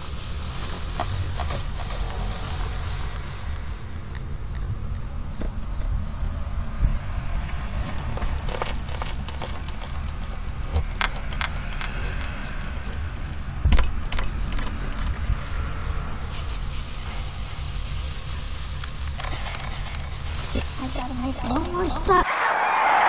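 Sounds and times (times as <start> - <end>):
steady low rumble: 0.0 - 22.3
keys jangling: 7.8 - 12.6.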